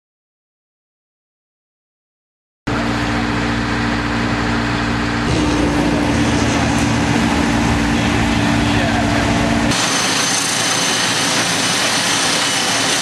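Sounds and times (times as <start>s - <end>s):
broad rushing noise: 2.7s - 13.0s
engines droning: 2.7s - 13.0s.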